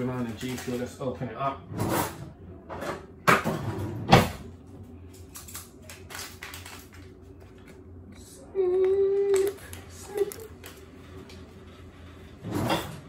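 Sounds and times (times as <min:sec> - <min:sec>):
packet rustling: 0:00.1 - 0:00.9, 0:05.3 - 0:07.8.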